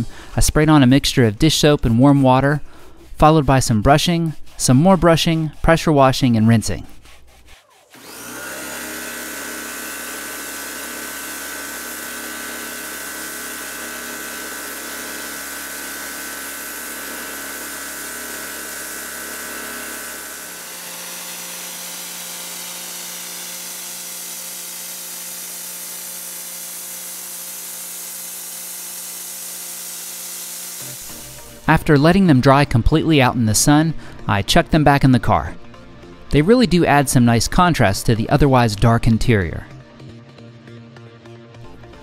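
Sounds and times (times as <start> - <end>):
pressure washer pump whine: 7.9 - 31.8.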